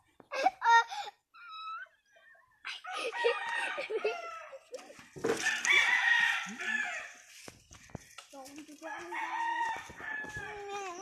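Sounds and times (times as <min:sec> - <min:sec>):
rooster crowing: 0:03.1 - 0:04.6, 0:05.4 - 0:07.2, 0:08.9 - 0:10.7.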